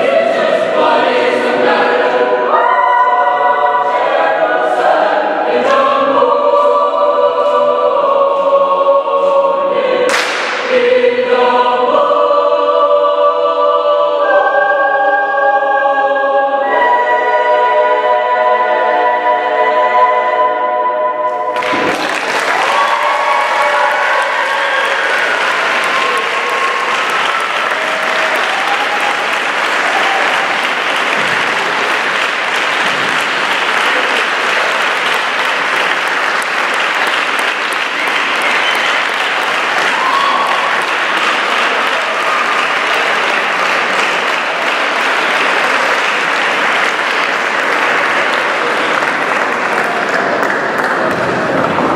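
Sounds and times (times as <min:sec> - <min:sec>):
audience applauding: 0:21.5 - 0:51.9.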